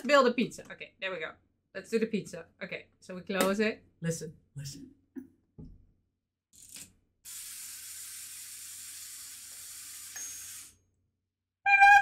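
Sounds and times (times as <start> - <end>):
toy wind-up spring whirring: 6.6 - 10.8.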